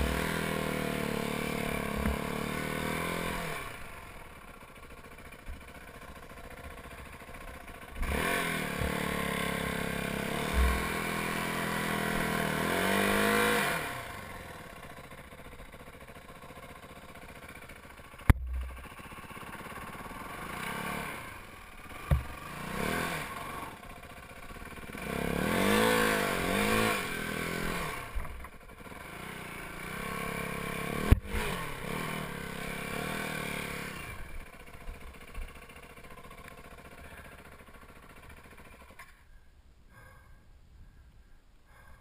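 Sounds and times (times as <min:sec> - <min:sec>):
dirt bike engine revving: 0:00.0 - 0:39.2
sharp knocks: 0:22.0 - 0:22.4.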